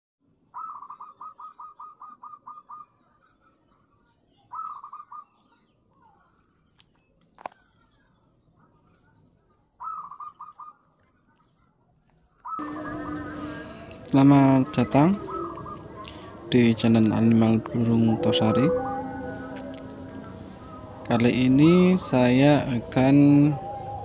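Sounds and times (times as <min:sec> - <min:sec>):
bird calling short notes: 0:12.5 - 0:24.0.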